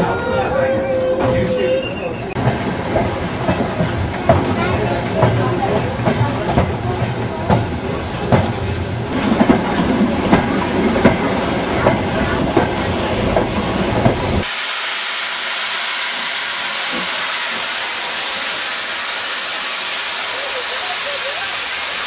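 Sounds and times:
steam locomotive blowing off steam: 0:01.0 - 0:22.0
train wheels knocking on rail joints: 0:02.4 - 0:14.5.

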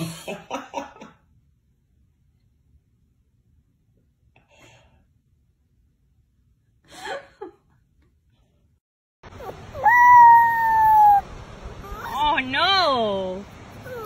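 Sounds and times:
puppy howling: 0:09.4 - 0:11.2, 0:11.8 - 0:12.4, 0:13.8 - 0:14.0
soft whimper: 0:11.8 - 0:12.3, 0:13.8 - 0:14.0.

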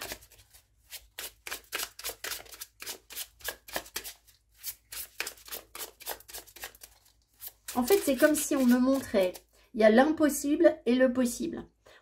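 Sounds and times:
cards being shuffled: 0:00.0 - 0:09.4.

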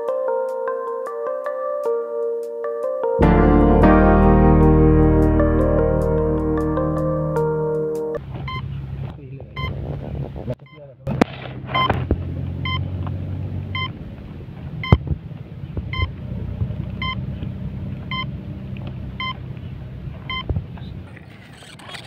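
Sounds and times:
short regular beeps: 0:12.6 - 0:12.8.

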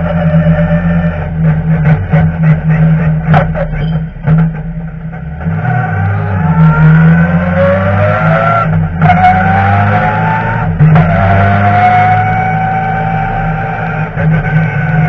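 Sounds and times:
race car engine revving: 0:00.0 - 0:15.0.

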